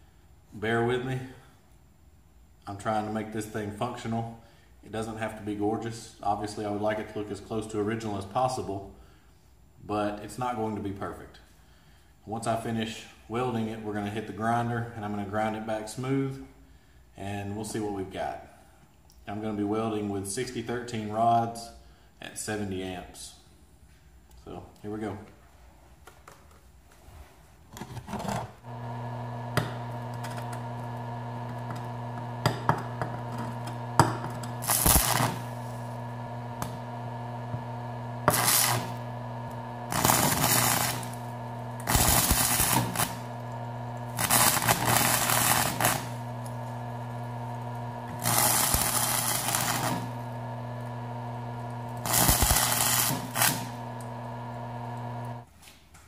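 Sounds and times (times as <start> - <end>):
welder humming: 28.6 - 55.5
welding arc crackling: 28.7 - 55.5.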